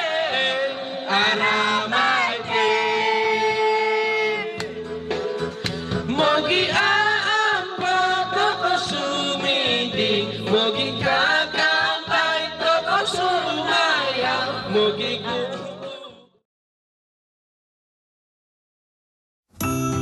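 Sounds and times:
instrumental backing music: 1.5 - 16.0.

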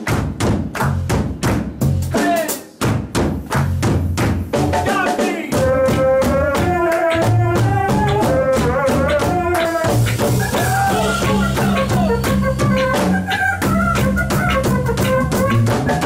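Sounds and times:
drums and bass: 0.0 - 16.0
horn playing melody: 6.8 - 16.0.

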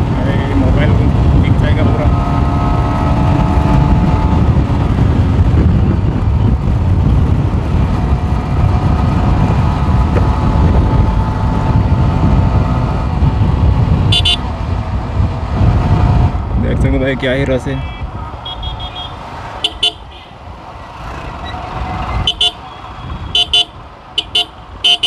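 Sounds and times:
motorcycle engine running: 0.0 - 16.5
wind buffeting microphone: 0.0 - 19.6
horn toot: 14.1 - 14.4, 17.8 - 20.3, 22.2 - 25.0.

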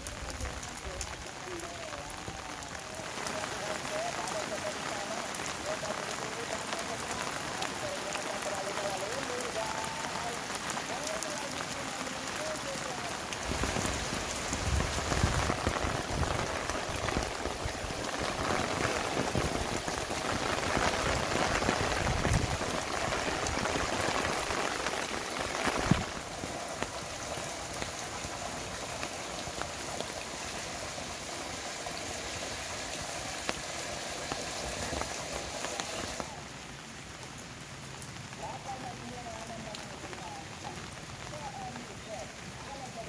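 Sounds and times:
heavy rain hissing: 0.0 - 43.0.

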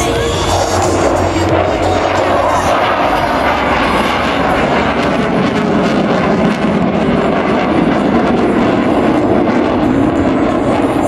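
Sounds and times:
jet engines roaring overhead: 0.0 - 11.0.

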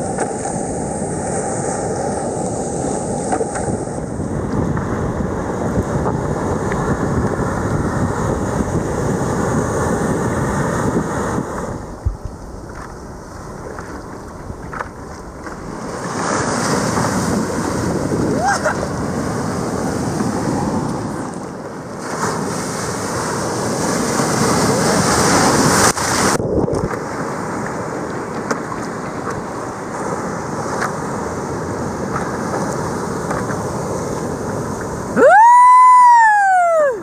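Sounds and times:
wind buffeting microphone: 0.0 - 35.2
rushing sea and surf: 0.0 - 37.0.

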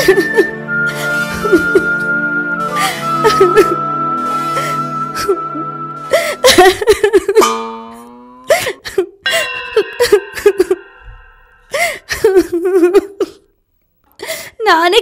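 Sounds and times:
woman sobbing: 0.0 - 0.6, 2.8 - 3.8, 4.7 - 7.4, 8.5 - 10.9, 11.7 - 13.5
held music notes: 0.0 - 12.1.

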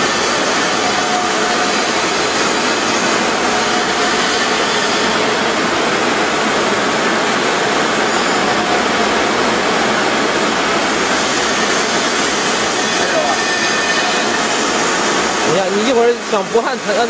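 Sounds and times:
welding arc hissing: 10.8 - 17.0.

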